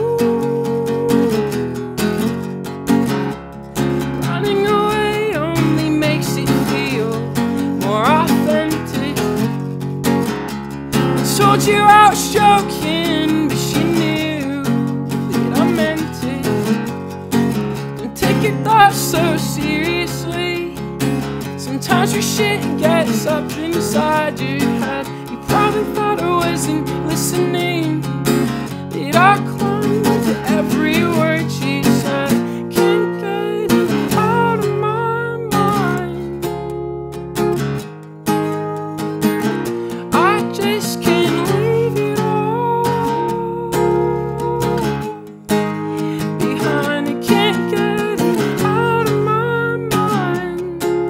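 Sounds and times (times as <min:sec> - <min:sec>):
man singing: 0:00.0 - 0:01.6, 0:04.2 - 0:09.4, 0:11.2 - 0:16.8, 0:18.0 - 0:20.9, 0:21.6 - 0:28.2, 0:28.9 - 0:36.2, 0:40.1 - 0:45.3, 0:46.2 - 0:51.0
strummed acoustic guitar: 0:00.0 - 0:51.0.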